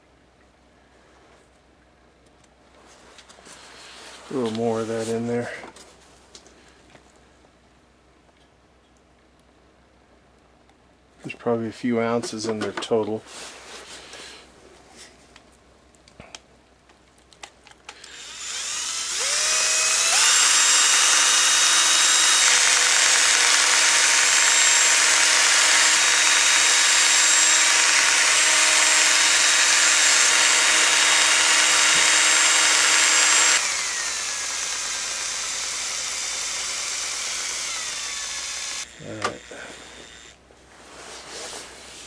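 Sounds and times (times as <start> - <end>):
cordless drill motor whine: 18.0 - 40.4.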